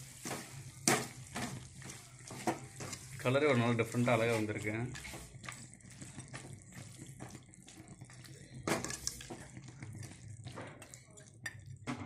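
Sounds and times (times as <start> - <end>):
chicken frying sizzle: 0.0 - 12.0
metal ladle scraping metal pan: 4.0 - 5.4, 8.7 - 9.4.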